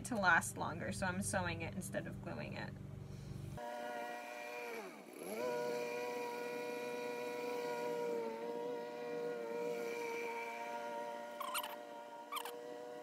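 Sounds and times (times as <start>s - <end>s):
lawnmower engine running: 2.8s - 11.6s.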